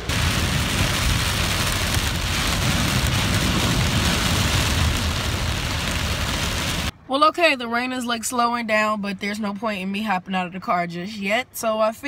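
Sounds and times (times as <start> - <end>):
heavy rain on car: 0.0 - 6.9.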